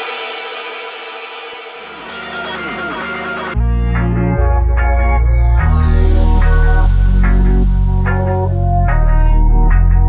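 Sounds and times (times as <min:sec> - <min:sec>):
held synth tones: 0:02.1 - 0:03.6.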